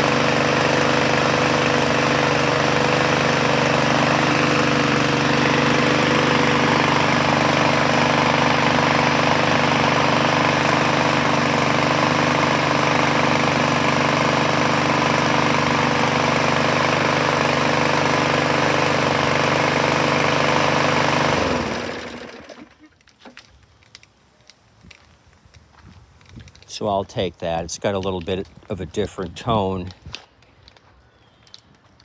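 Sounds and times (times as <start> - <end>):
lawn mower engine running: 0.0 - 22.9
exhaust crackling and popping: 22.0 - 32.0.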